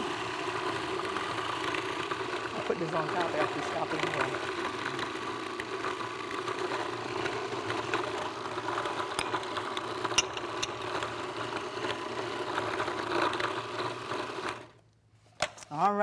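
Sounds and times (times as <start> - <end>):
food processor motor running: 0.0 - 14.8.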